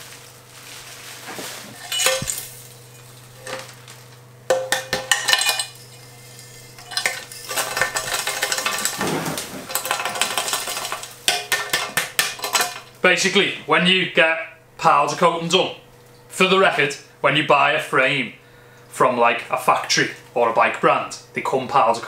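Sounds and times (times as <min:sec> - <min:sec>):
metal bike frame clinking: 0:01.8 - 0:02.6.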